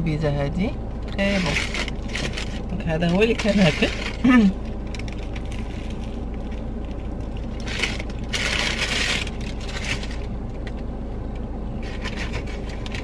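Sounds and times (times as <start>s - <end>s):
steady low hum: 0.0s - 13.0s
paper wrapper crinkling: 1.3s - 10.3s.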